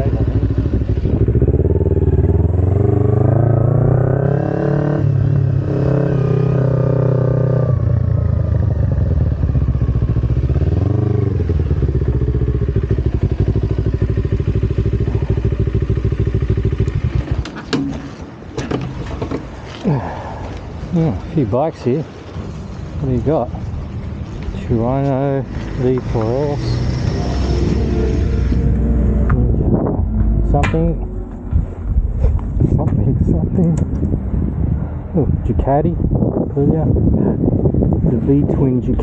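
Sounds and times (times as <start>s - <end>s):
motorcycle engine revving: 0.0s - 17.5s, 24.6s - 34.8s.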